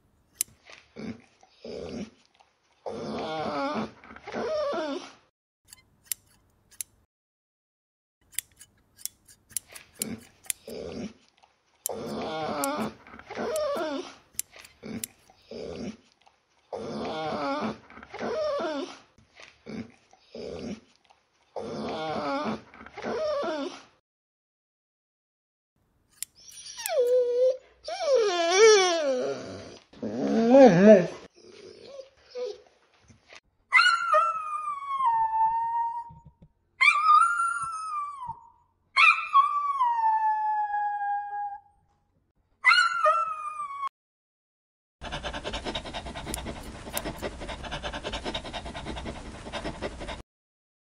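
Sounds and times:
dog whining and moaning: 1.6s - 5.3s, 11.9s - 14.2s, 16.7s - 19.1s, 20.3s - 24.0s, 26.4s - 32.8s, 33.7s - 41.7s, 42.6s - 43.9s
small dog howling: 33.7s - 36.2s, 42.6s - 43.9s.

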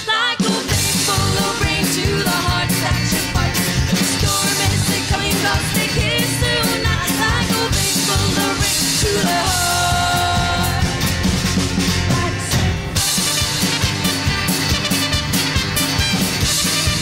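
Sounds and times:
women singing: 0.0s - 11.2s, 12.0s - 13.0s
bass guitar: 0.0s - 17.0s
drums: 0.0s - 17.0s
guitar: 0.0s - 17.0s.

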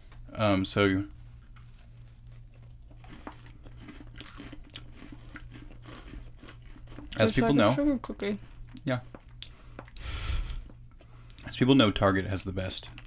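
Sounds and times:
steady low hum: 0.0s - 13.0s
faint cookie crunches: 1.0s - 7.2s
people chewing cookies: 1.0s - 11.8s.

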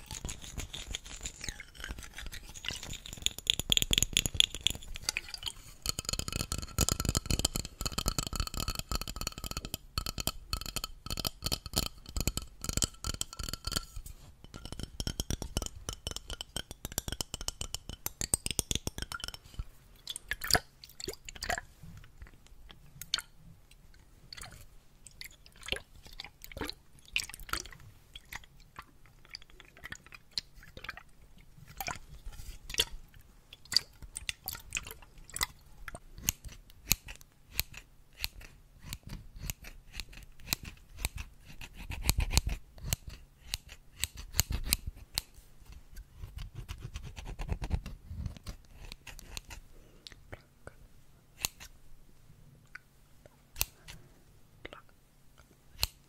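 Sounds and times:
fingernails tapping on metal bottle: 2.9s - 5.0s, 5.9s - 19.6s.

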